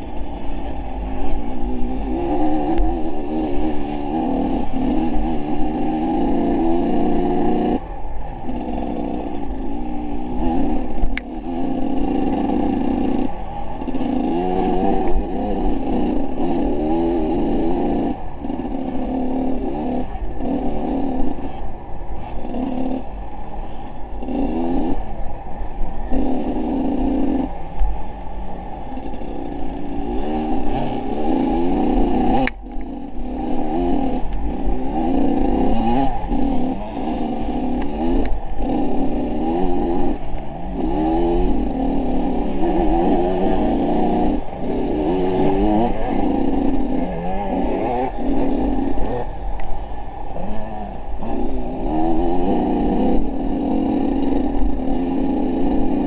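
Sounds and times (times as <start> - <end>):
vehicle engine revving: 0.0 - 56.0.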